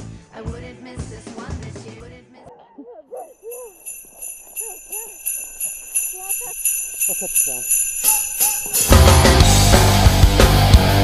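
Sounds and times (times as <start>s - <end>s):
sleigh bells shaken: 3.2s - 10.2s.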